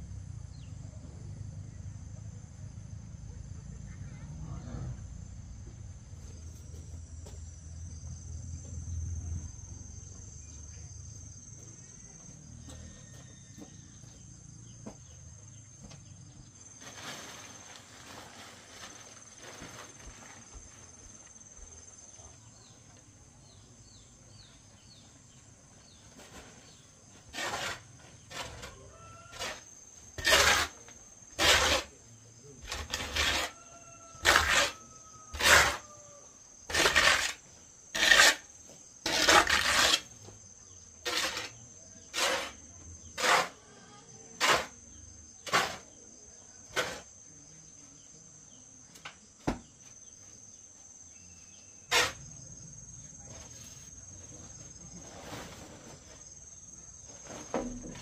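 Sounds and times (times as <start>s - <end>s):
high insect drone: 0.0s - 58.0s
digging tool scraping soil: 25.8s - 32.0s, 32.6s - 35.9s, 36.7s - 40.3s, 41.0s - 43.6s, 44.4s - 44.8s, 45.4s - 46.0s, 46.7s - 47.1s, 51.5s - 52.4s.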